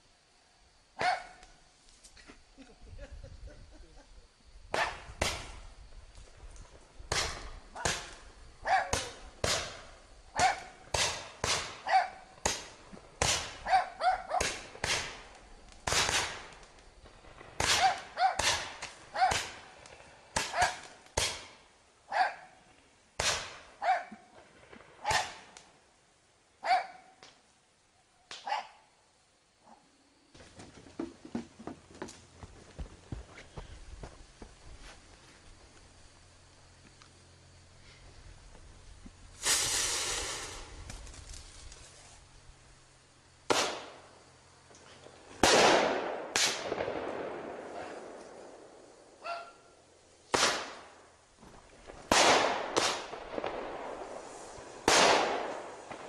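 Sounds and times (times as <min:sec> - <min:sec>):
fireworks bangs: 0:07.0 - 0:13.7, 0:14.3 - 0:21.6, 0:23.2 - 0:25.6, 0:39.4 - 0:41.7, 0:43.5 - 0:44.1, 0:45.3 - 0:49.2, 0:51.6 - 0:56.0.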